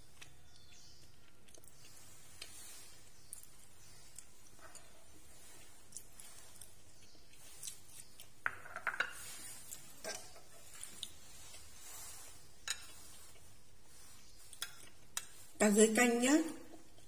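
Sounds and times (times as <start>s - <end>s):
ceramic bowl set on table: 8.4s - 13.5s.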